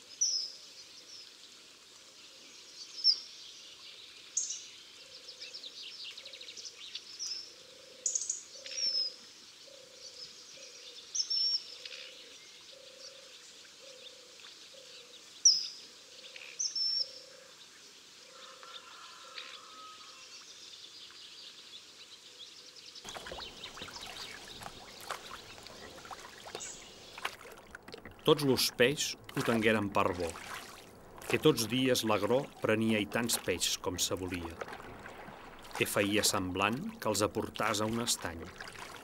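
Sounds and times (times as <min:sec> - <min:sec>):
splashing water: 0:23.1 - 0:39.0.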